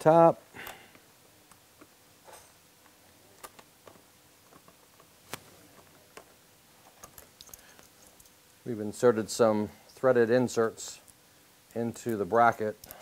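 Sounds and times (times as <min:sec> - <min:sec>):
small hardware clicking and tapping: 0:06.9 - 0:08.4.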